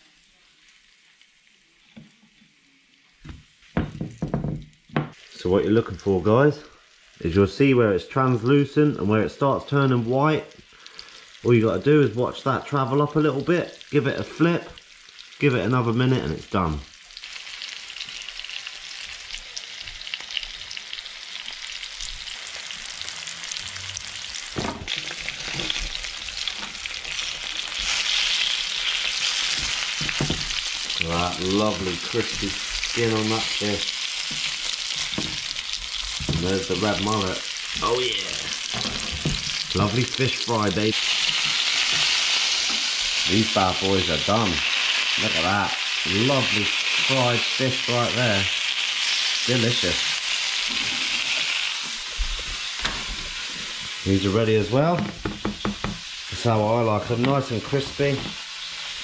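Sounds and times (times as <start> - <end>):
fish sizzling in oil: 0.0 - 59.0
loud knocks and thumps: 3.3 - 5.1, 29.6 - 30.6, 55.0 - 56.0
fork knocking in pan: 55.0 - 56.1.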